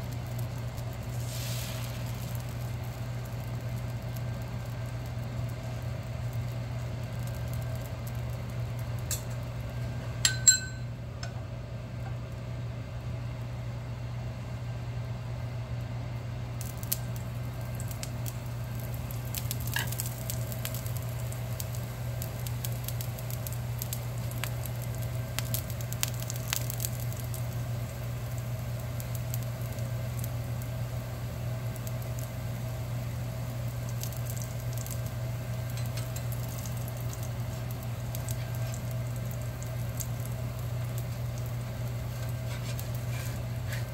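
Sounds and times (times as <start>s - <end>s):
batter sizzling on a pan: 0.0s - 10.6s, 14.2s - 43.9s
steady low hum: 0.0s - 43.9s
sharp metallic clink: 10.3s - 10.9s.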